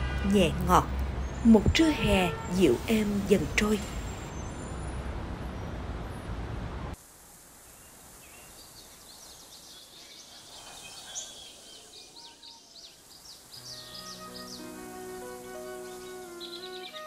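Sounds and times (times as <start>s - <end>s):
street traffic noise: 0.0s - 7.0s
birds chirping: 7.8s - 17.0s.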